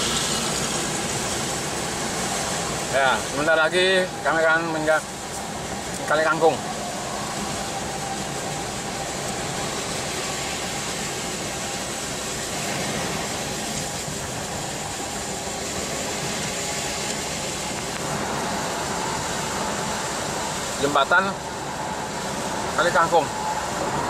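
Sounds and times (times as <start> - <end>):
tyres hissing on wet road: 0.0 - 24.0.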